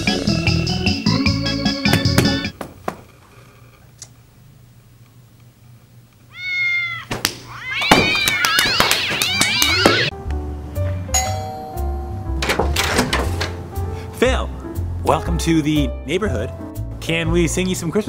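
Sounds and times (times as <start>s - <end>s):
cat meowing: 6.3s - 10.1s
cats yowling and screeching: 6.3s - 10.1s.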